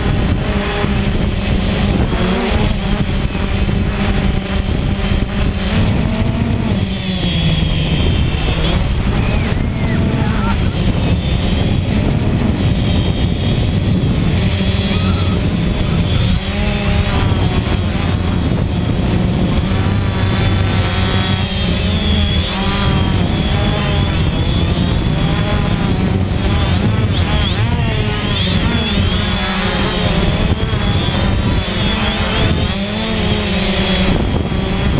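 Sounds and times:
drone propellers buzzing: 0.0s - 34.9s.

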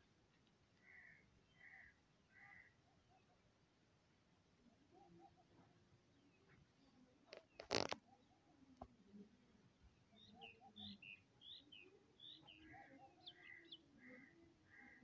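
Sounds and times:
small birds chirping: 0.0s - 3.8s, 9.6s - 15.0s.

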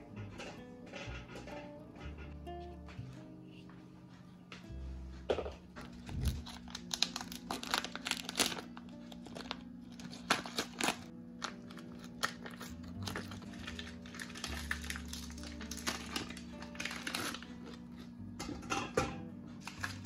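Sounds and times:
soft background music: 0.0s - 20.0s
plastic film crinkling: 5.8s - 18.1s.

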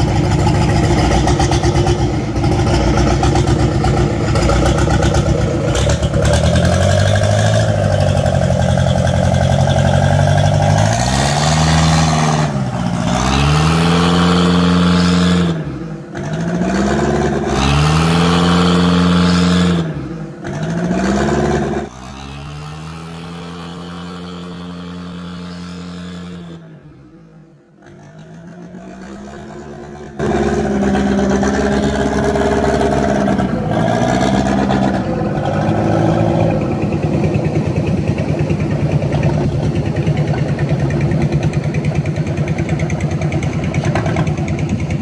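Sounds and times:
boat diesel engine revving: 0.0s - 45.0s.

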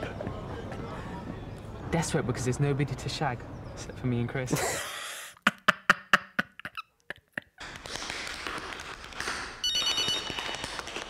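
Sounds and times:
man laughing: 4.5s - 7.6s
tap shoes on wooden floor: 7.7s - 11.0s
electronic ringing tone: 9.6s - 10.5s.

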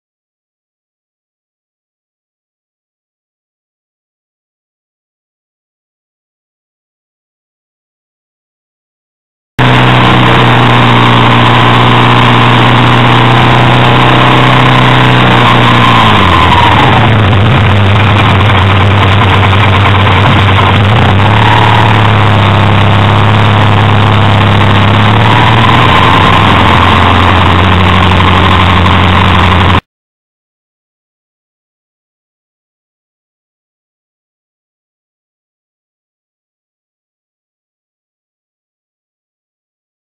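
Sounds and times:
heavy wind noise: 9.6s - 29.8s
motorcycle engine running: 9.6s - 29.8s
road noise: 9.6s - 29.8s.

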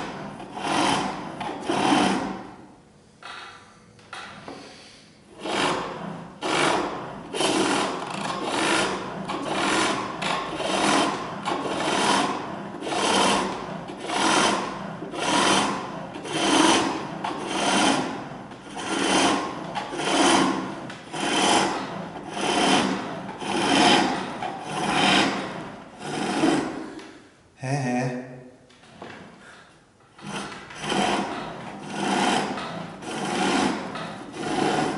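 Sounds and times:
chisel scraping spinning wood: 0.0s - 2.7s, 5.3s - 27.2s, 28.8s - 34.9s.

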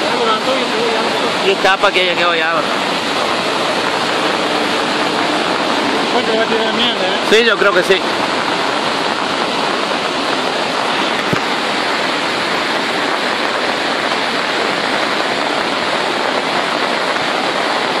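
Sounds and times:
flood water rushing: 0.0s - 18.0s.

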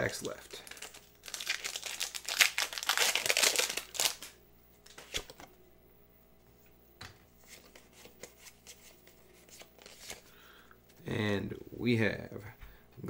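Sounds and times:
foil wrapper tearing and crinkling: 0.2s - 5.3s.

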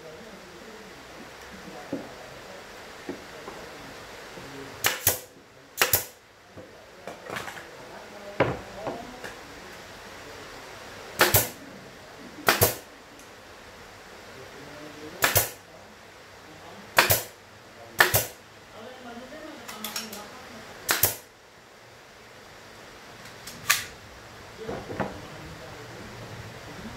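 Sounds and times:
nail gun shots: 4.8s - 6.2s, 11.2s - 11.6s, 12.4s - 12.9s, 15.2s - 15.6s, 17.0s - 17.4s, 18.0s - 18.4s, 20.9s - 21.3s.

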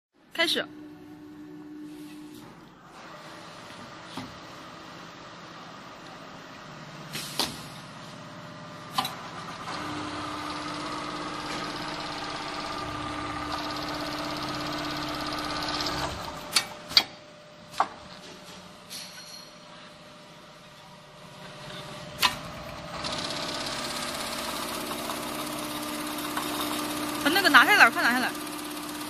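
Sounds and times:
sewing machine stitching: 9.0s - 16.5s, 22.2s - 29.0s.

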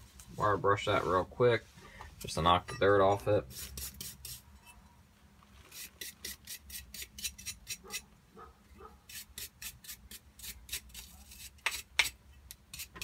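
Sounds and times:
wire brush scrubbing metal: 3.4s - 4.5s, 12.7s - 13.0s.

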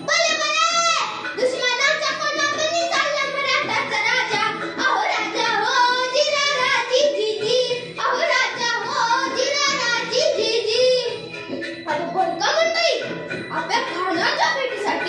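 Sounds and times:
girl singing: 0.0s - 11.3s.

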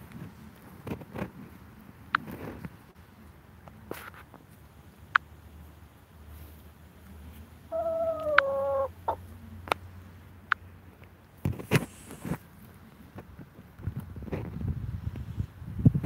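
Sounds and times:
chicken calling: 7.7s - 9.3s
scratchy noise burst: 11.5s - 12.4s.

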